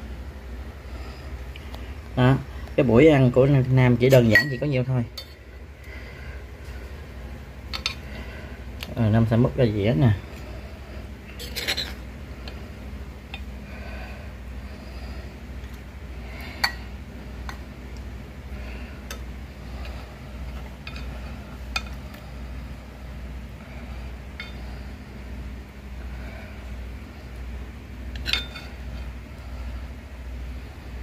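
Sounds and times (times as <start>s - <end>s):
steady low hum: 0.0s - 31.0s
metal spoon clinking on pot: 4.2s - 5.4s.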